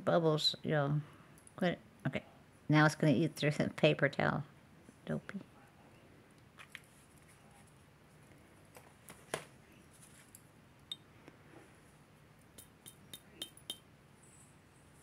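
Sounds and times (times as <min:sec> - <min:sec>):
clicks and taps on stone: 0:12.6 - 0:13.8.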